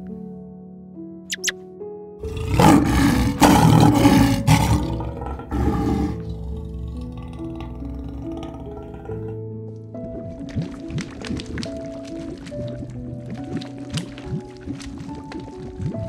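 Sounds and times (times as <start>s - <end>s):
background music: 0.0s - 16.0s
short high squeaks: 1.3s - 1.5s
lion roaring: 2.2s - 9.4s.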